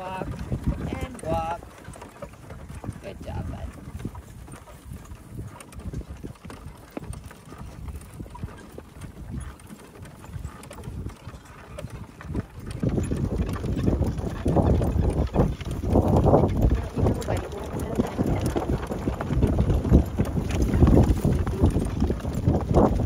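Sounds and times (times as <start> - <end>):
harness and cart rattling: 0.0 - 23.0
horse hooves clip-clopping: 0.0 - 23.0
rough rumbling noise: 12.7 - 23.0.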